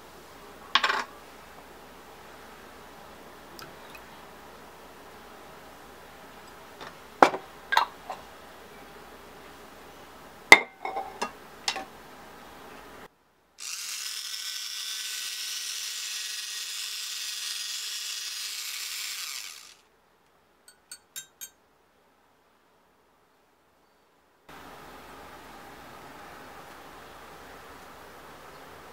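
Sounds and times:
milk frother whirring: 13.6s - 19.8s
glass clinking: 20.7s - 21.6s.

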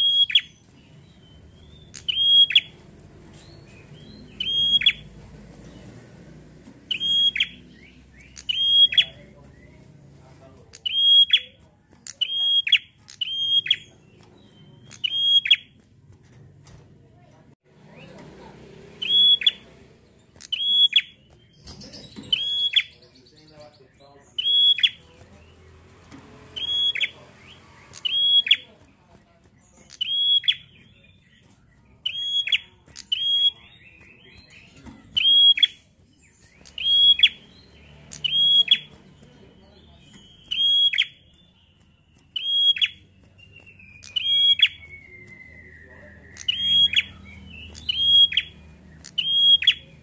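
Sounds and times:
bird singing high whistles: 0.0s - 2.8s, 3.4s - 5.1s, 6.9s - 9.3s, 10.8s - 13.9s, 14.6s - 15.7s, 19.0s - 19.6s, 20.4s - 23.0s, 24.4s - 25.0s, 29.9s - 31.2s, 32.0s - 38.9s, 39.9s - 50.0s
songbird calling: 0.0s - 6.0s, 6.8s - 9.9s, 10.6s - 15.7s, 19.0s - 25.6s, 26.4s - 28.8s, 29.6s - 50.0s
chattering trill: 0.0s - 50.0s.

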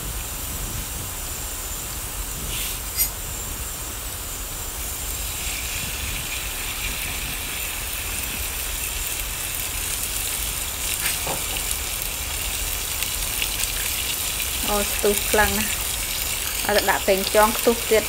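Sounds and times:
garlic sizzling in oil: 0.0s - 18.0s
light crackles: 7.9s - 18.0s.

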